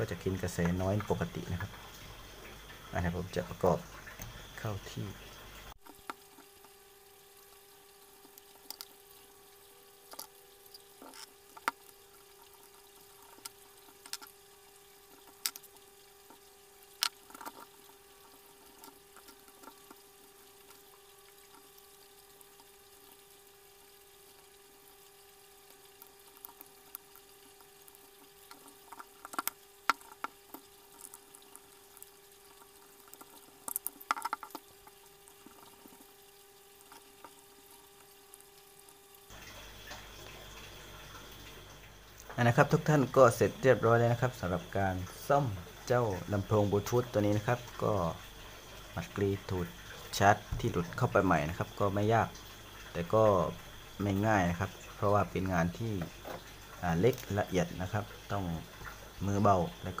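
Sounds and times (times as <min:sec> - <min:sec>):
faint steady hum: 0:00.0 - 1:00.0.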